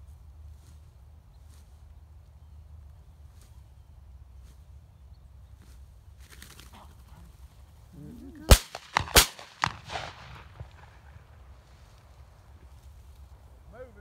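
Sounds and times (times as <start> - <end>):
shotgun shots: 8.5 - 11.4.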